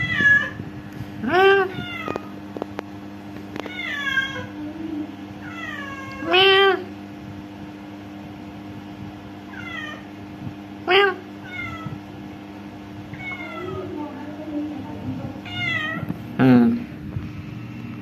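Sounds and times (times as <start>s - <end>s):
cat meowing: 0.0s - 0.6s, 1.6s - 2.3s, 3.6s - 4.6s, 5.4s - 6.7s, 9.5s - 10.1s, 11.4s - 12.0s, 13.1s - 13.9s, 15.4s - 16.1s
steady low hum: 0.0s - 18.0s.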